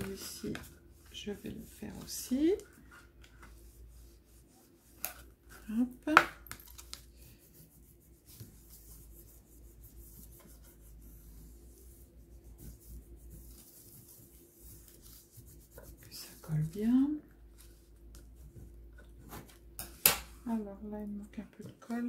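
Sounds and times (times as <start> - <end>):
bone folder rubbing paper: 7.2 - 16.8.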